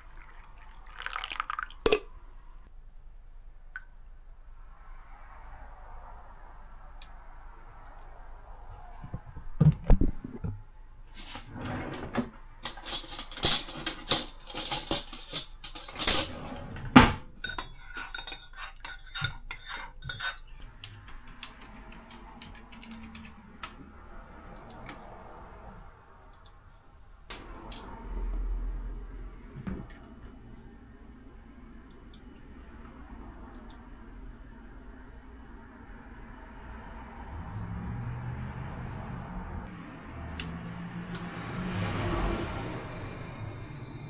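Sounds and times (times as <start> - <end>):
spoon stirring in ceramic mug: 17.5 - 20.7.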